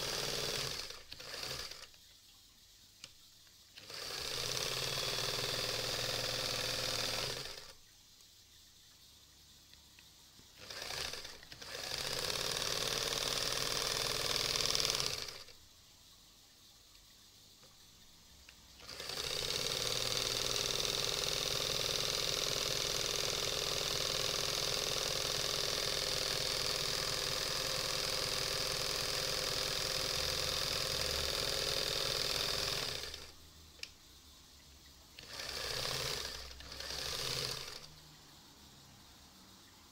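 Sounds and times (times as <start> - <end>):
sewing machine stitching: 0.0 - 2.0, 3.8 - 7.8, 10.6 - 15.6, 18.8 - 33.4, 35.2 - 38.0.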